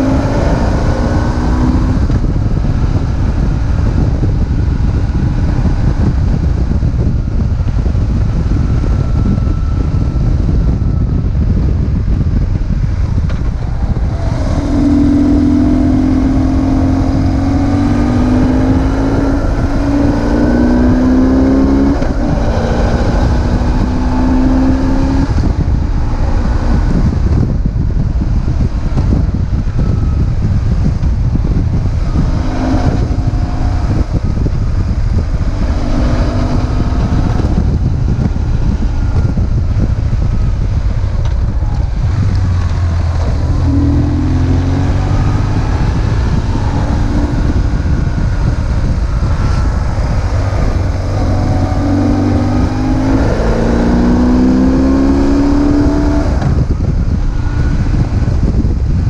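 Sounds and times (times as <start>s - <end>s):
heavy wind rumble: 0.0s - 59.0s
motorcycle engine under way: 0.0s - 59.0s.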